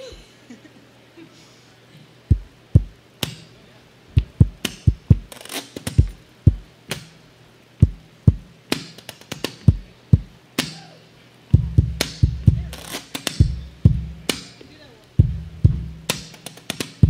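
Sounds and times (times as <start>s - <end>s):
percussive taps and knocks: 4.2s - 7.1s, 11.6s - 14.4s
low sustained bass notes: 11.5s - 12.8s, 13.4s - 14.3s, 15.2s - 16.1s.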